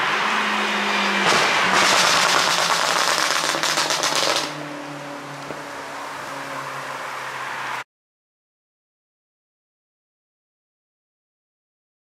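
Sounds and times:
engine drone: 0.0 - 7.8
exhaust crackling and popping: 1.3 - 4.6.

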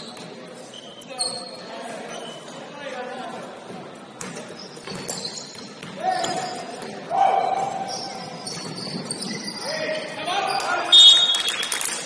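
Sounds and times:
basketball bouncing on court: 4.2 - 9.4.

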